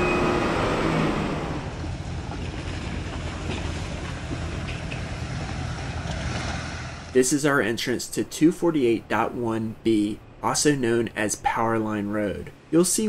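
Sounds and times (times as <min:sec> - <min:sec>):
vehicle rumbling on gravel: 0:00.5 - 0:07.2.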